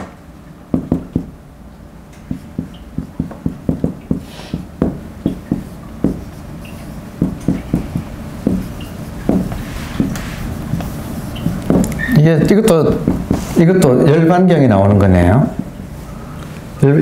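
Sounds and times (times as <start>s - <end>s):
marker tapping on whiteboard: 0.7s - 1.3s, 2.2s - 13.5s
marker scraping: 2.3s - 13.6s
marker squeaking: 5.2s - 13.5s.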